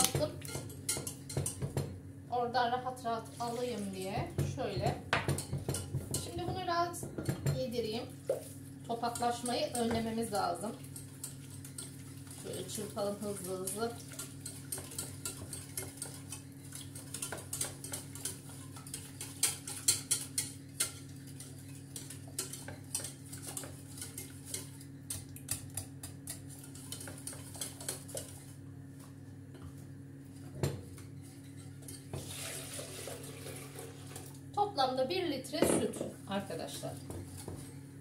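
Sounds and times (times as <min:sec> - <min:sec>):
whisk scraping metal pot: 0:05.3 - 0:28.6.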